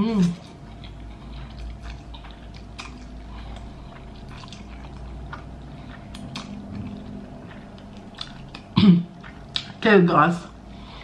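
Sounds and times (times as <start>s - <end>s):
person chewing: 0.0s - 9.8s
mouth clicks and smacks: 1.6s - 9.8s.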